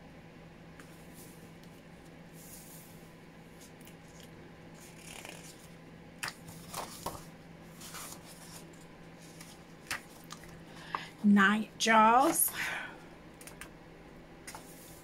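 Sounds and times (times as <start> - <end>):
book pages rustling: 0.8 - 11.0, 14.5 - 15.0.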